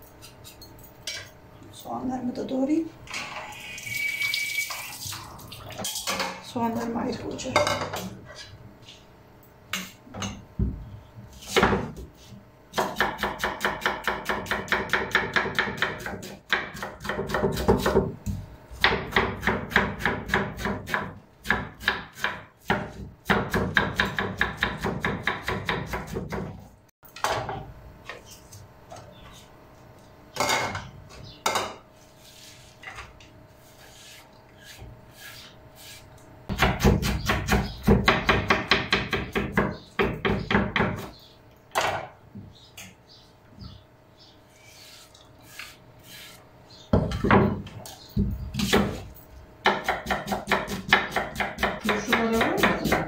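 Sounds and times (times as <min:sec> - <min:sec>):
knife chopping on wooden board: 0:12.7 - 0:18.1, 0:49.6 - 0:53.0.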